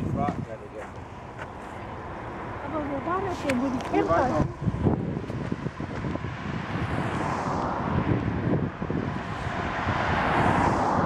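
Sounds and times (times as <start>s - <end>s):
wind rumble on microphone: 0.0s - 0.8s, 3.0s - 11.0s
car driving past: 1.9s - 11.0s.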